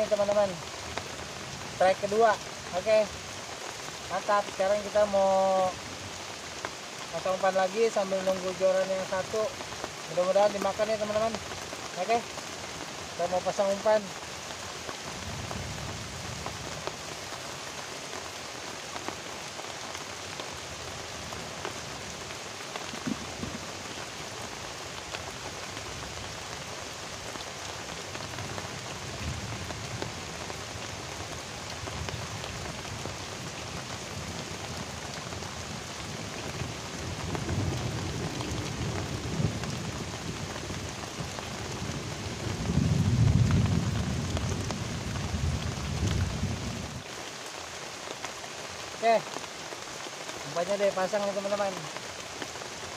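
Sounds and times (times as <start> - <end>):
heavy rain falling: 0.0 - 52.9
thunder rumbling: 22.9 - 24.0, 35.6 - 47.0.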